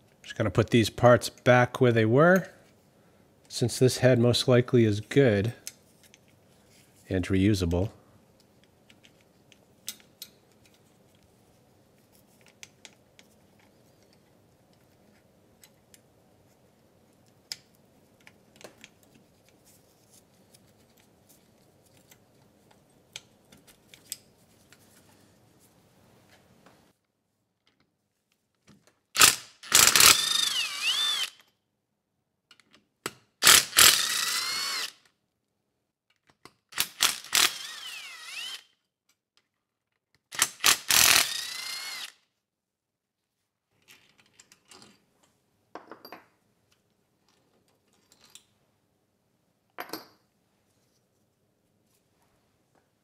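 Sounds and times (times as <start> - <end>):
cordless drill whining: 29.2 - 31.4, 33.4 - 35.0, 37.0 - 38.7, 40.6 - 42.2.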